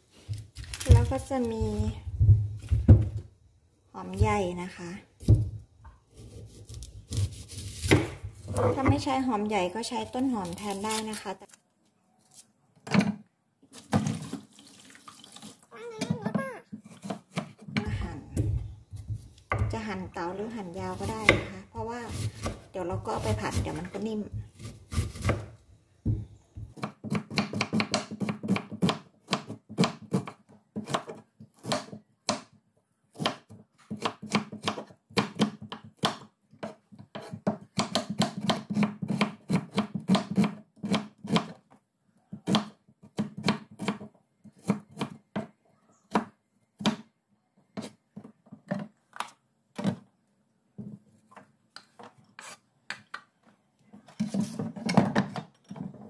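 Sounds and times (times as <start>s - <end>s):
knife slicing onion on board: 6.2s - 9.0s, 16.0s - 17.7s, 20.9s - 25.5s, 26.7s - 32.5s, 33.1s - 41.6s, 42.3s - 45.5s.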